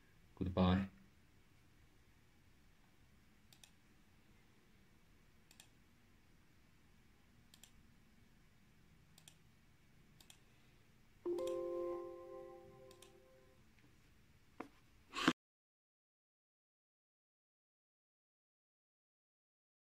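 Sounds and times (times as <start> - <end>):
faint sharp clicks: 3.5 - 3.8, 5.5 - 5.8, 7.5 - 7.8, 9.2 - 9.4.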